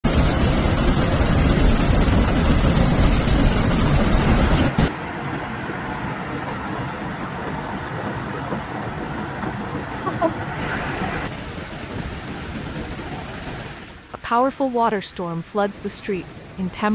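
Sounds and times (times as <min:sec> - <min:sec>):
floodwater rushing with low rumble: 0:00.0 - 0:16.9
water cascading over a wall: 0:00.1 - 0:07.4, 0:10.5 - 0:15.0.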